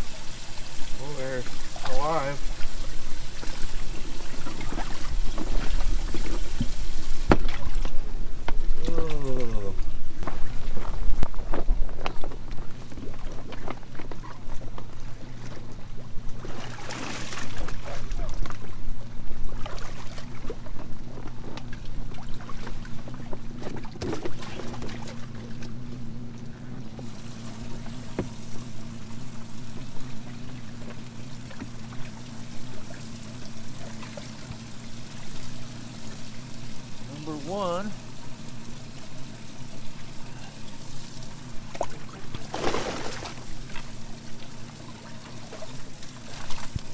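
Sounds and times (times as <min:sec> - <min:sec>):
water sloshing and pouring: 0:00.0 - 0:08.3, 0:09.0 - 0:18.8, 0:19.4 - 0:25.9, 0:26.9 - 0:46.9
steady low hum: 0:00.0 - 0:46.9.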